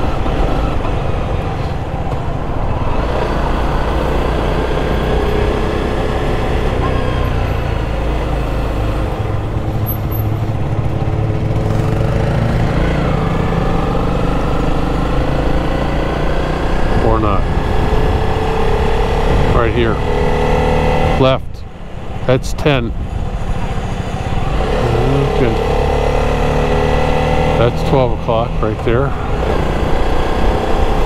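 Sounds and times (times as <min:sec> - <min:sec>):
rush of riding wind: 0:00.0 - 0:31.0
motorcycle engine running: 0:05.5 - 0:20.8.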